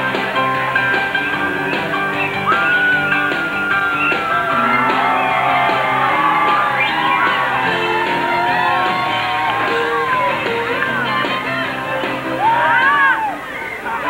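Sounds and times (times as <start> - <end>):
rock music: 0.0 - 13.2
shouted vocal: 1.4 - 13.5.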